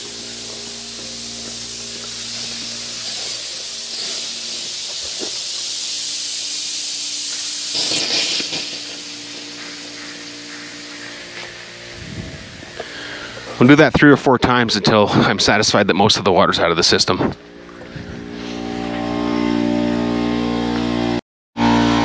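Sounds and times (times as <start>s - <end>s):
burst of spray: 0.0s - 13.6s
sprinkler heads hissing: 0.0s - 14.0s.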